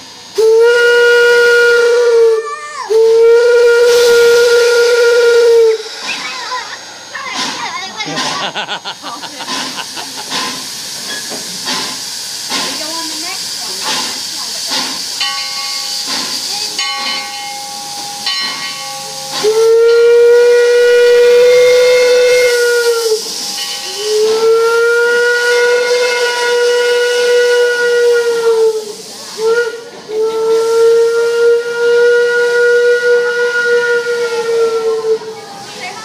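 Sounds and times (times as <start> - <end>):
steam hissing: 0.0 - 36.0
steam locomotive whistle blasts: 0.2 - 6.4, 15.9 - 35.4.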